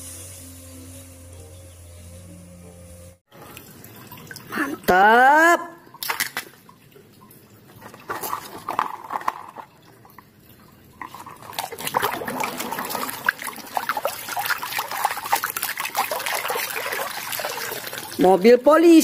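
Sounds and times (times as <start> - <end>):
wet splashes: 5.7 - 18.5
hand squelching in muddy water: 11.1 - 18.2.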